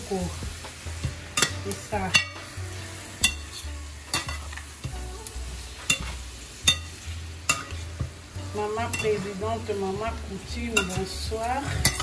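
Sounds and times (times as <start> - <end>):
food sizzling: 0.0 - 12.0
metal spatula scraping a steel pan: 1.4 - 4.9, 5.8 - 9.9, 10.5 - 12.0.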